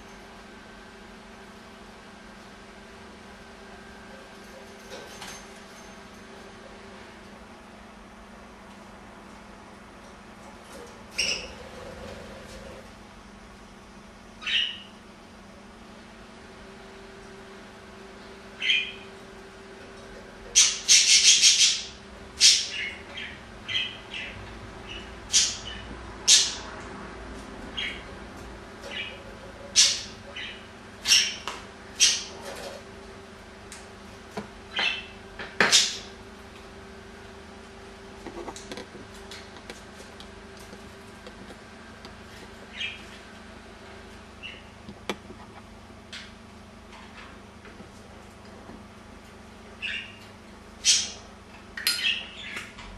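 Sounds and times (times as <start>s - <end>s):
budgerigar chirping: 14.4s - 14.9s, 20.6s - 26.6s, 49.8s - 50.2s, 50.8s - 51.2s.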